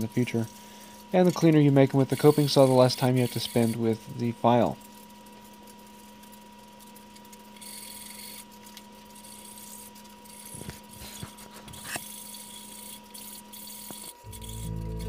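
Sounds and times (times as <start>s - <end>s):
faint hum: 14.1s - 15.0s.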